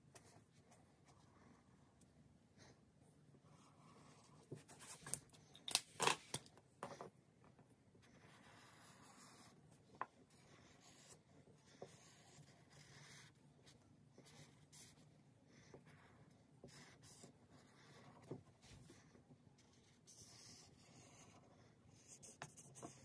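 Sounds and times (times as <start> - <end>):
highlighter rubbing on paper: 8.2 - 9.6.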